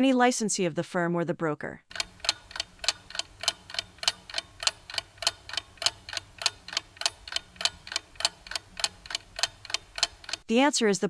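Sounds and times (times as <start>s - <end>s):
clock ticking: 1.9s - 10.5s.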